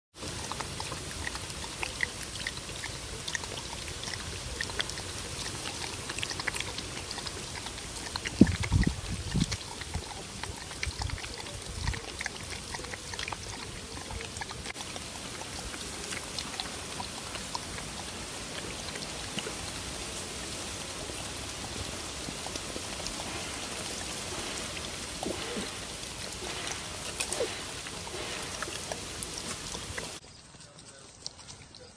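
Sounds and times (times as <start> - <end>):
dog lapping milk: 0.2 - 31.9
steady hiss: 14.7 - 30.2.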